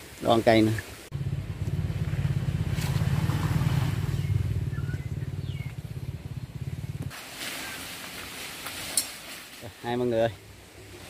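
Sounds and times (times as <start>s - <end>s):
small engine running: 1.2s - 7.0s.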